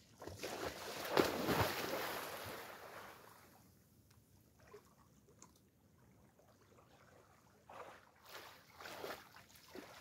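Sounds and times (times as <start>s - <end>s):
person splashing into water: 0.2s - 3.0s.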